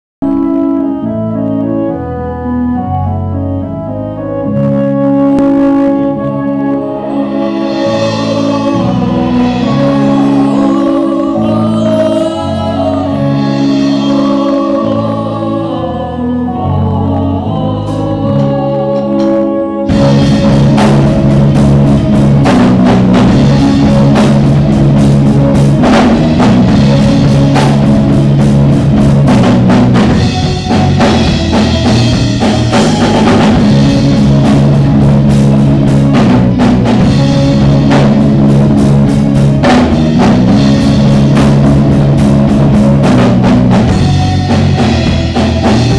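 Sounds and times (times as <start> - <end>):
bass guitar: 0.2 - 45.9
electric guitars: 0.2 - 45.9
sustained keyboard chords: 0.2 - 45.9
drum kit: 5.0 - 45.9
person singing: 5.9 - 28.5, 29.5 - 38.0.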